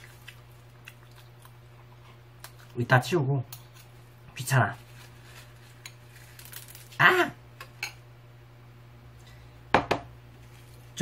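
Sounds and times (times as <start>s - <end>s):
man exclaiming: 7.0s - 7.4s.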